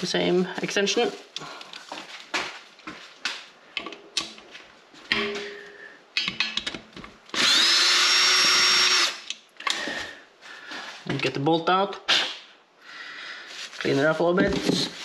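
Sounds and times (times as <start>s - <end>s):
clicks and knocks of tool: 6.2s - 7.2s
cordless drill whining: 7.4s - 9.2s.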